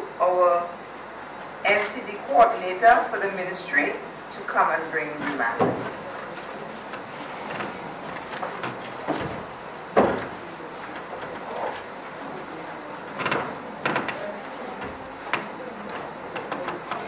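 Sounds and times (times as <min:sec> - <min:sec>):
knocks on wooden lectern: 0:07.5 - 0:10.4.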